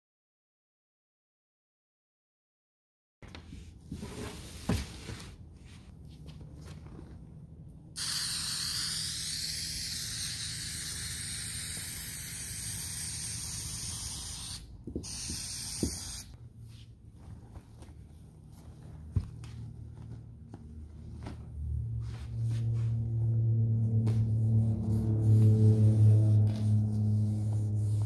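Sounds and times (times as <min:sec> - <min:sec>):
aerosol can spraying: 0:08.0 - 0:16.4
fabric rustling: 0:16.6 - 0:23.2.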